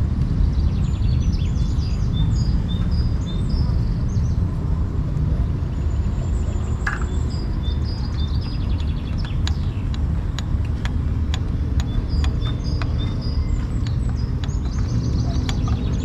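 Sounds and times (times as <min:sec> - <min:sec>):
small birds chirping: 0:00.0 - 0:16.0
wind rumble on microphone: 0:00.0 - 0:16.0
sharp clicks: 0:08.1 - 0:16.0.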